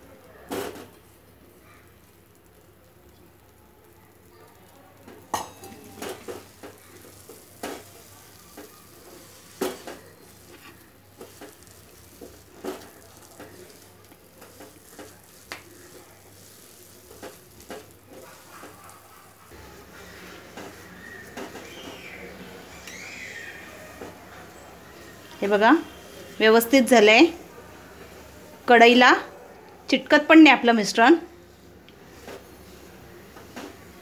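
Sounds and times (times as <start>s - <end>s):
spatula tapping and scraping pan: 5.3s - 19.2s.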